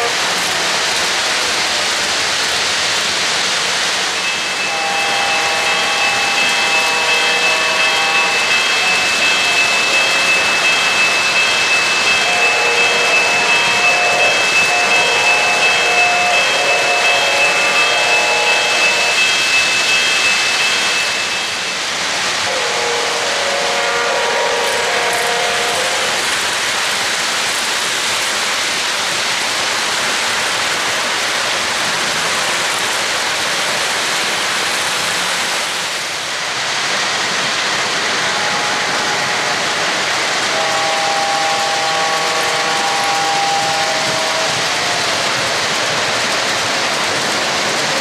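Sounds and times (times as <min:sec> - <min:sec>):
wheels clattering on rail: 0:00.0 - 0:48.0
held pitched tone: 0:04.2 - 0:21.7.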